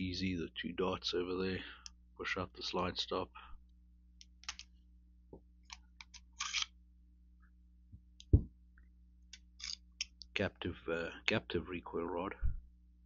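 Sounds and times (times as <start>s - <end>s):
pistol metallic clicks and scrapes: 5.6s - 6.7s, 9.6s - 10.2s.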